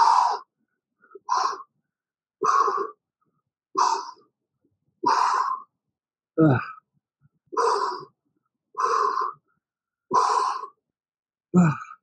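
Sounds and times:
man grunting: 0:06.4 - 0:06.8, 0:11.6 - 0:12.0.

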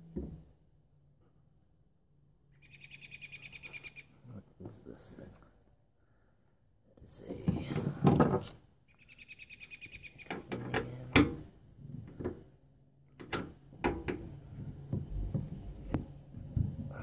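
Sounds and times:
faint low hum: 0:00.0 - 0:17.0
tailgate cable clicks and knocks: 0:13.2 - 0:14.3.

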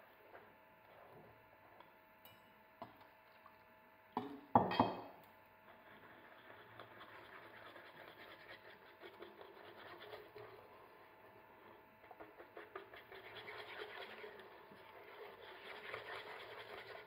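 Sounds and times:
whisk scraping metal saucepan: 0:05.7 - 0:17.0.

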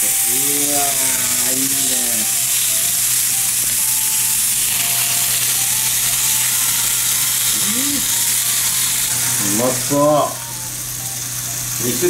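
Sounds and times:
person speaking: 0:00.0 - 0:02.4, 0:07.6 - 0:08.1
beef sizzling in a frying pan: 0:00.0 - 0:12.0.

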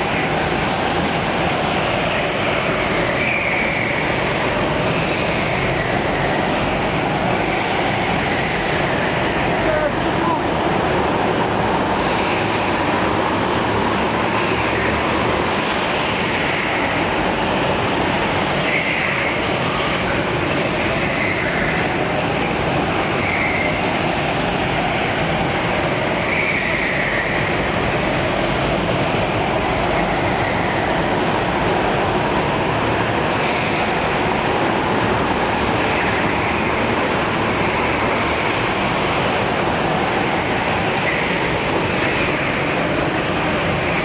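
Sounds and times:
go-kart engines droning: 0:00.0 - 0:44.0
tyre squeals: 0:03.0 - 0:04.3, 0:23.2 - 0:24.0.

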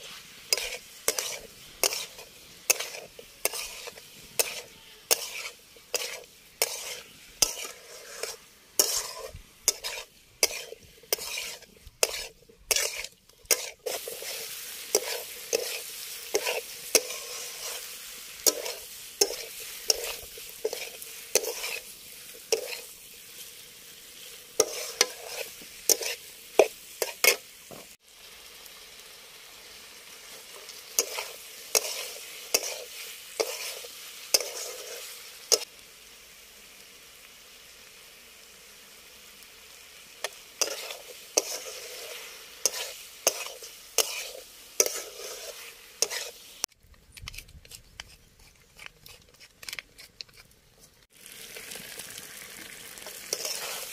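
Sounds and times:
metal spatula scraping a pan: 0:00.0 - 0:27.9, 0:30.2 - 0:35.7, 0:40.2 - 0:46.6, 0:53.0 - 0:53.9
food sizzling in a pan: 0:00.0 - 0:46.7, 0:50.9 - 0:53.9.

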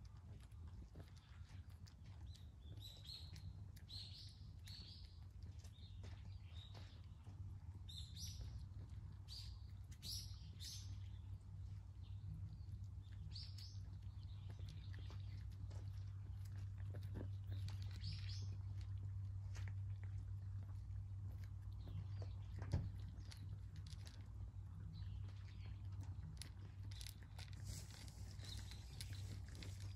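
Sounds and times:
steady low hum: 0:00.0 - 0:29.9
small birds chirping: 0:00.1 - 0:29.9.

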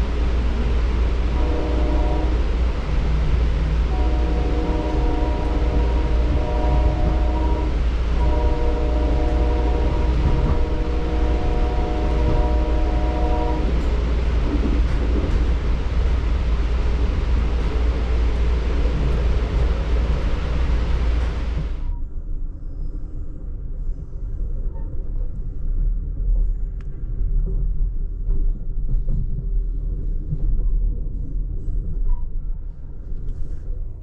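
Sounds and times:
rush of moving train: 0:00.0 - 0:34.0
train horn: 0:01.1 - 0:02.7, 0:03.8 - 0:14.1.

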